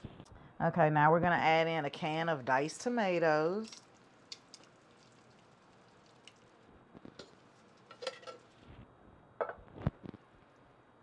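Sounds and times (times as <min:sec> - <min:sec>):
metal can clinking: 0:07.2 - 0:08.5.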